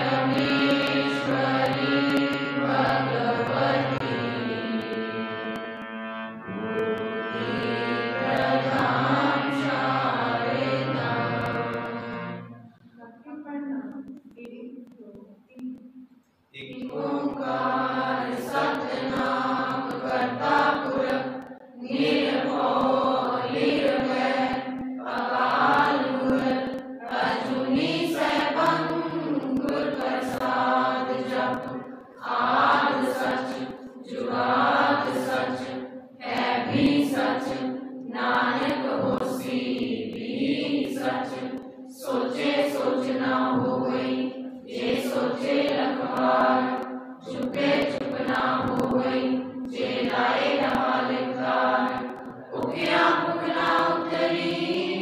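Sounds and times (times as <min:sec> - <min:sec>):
voices chanting a prayer song: 0:00.0 - 0:12.6, 0:16.6 - 0:55.0.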